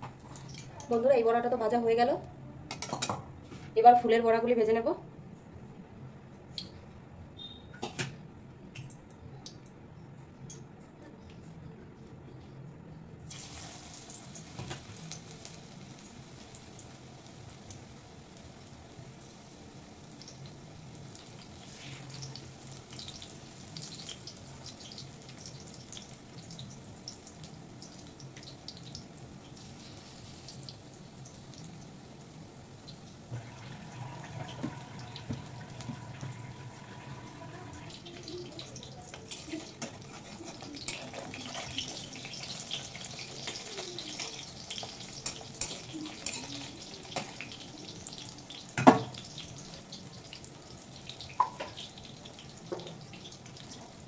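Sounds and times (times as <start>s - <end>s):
fritters sizzling in hot oil: 13.2s - 54.0s
metal spatula scraping pan: 39.3s - 42.0s.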